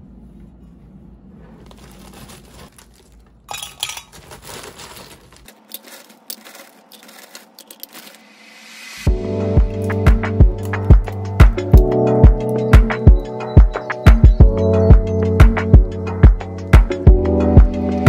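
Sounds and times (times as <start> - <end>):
ice cubes clinking in glass mug: 3.5 - 4.6, 5.5 - 8.2
music with steady beat: 9.1 - 18.0.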